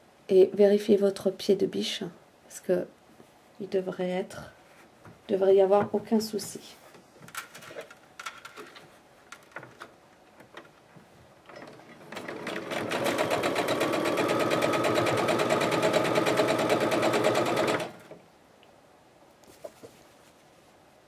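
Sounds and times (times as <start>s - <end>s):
sewing machine stitching: 11.5s - 18.2s.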